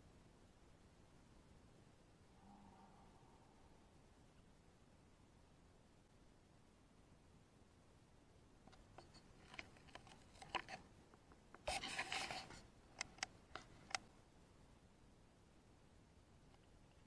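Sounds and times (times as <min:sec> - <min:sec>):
sharp clicks: 0:08.7 - 0:14.0.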